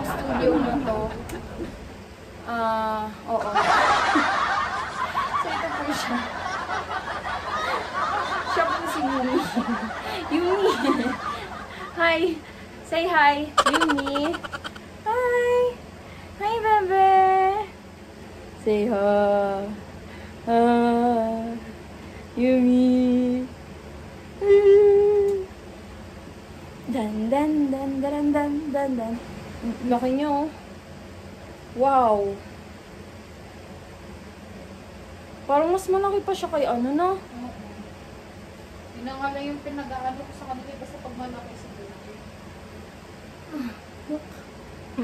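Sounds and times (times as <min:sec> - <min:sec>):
woman laughing and giggling: 0:05.0 - 0:06.6, 0:07.4 - 0:12.4, 0:13.6 - 0:14.8.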